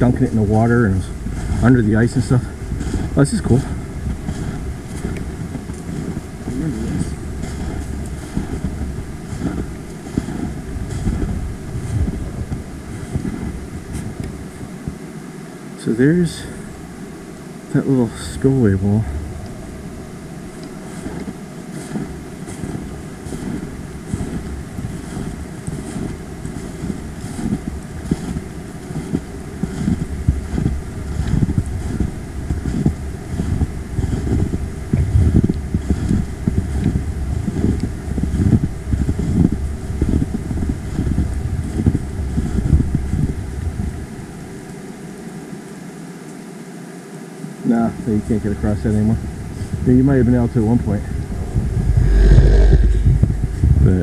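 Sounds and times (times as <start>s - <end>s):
footsteps in snow: 0.0s - 14.8s, 20.6s - 34.6s
wind buffeting microphone: 0.0s - 15.1s, 18.4s - 44.2s, 49.2s - 54.0s.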